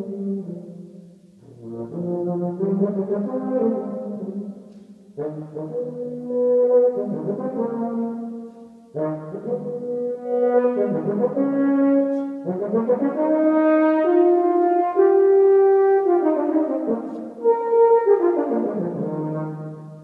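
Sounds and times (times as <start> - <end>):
euphonium slow melody: 0.0 - 20.0.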